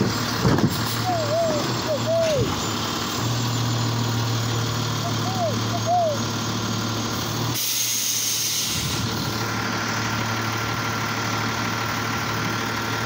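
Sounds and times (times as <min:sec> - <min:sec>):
diesel engine idling: 0:00.0 - 0:13.0
air brake hiss: 0:07.6 - 0:09.2.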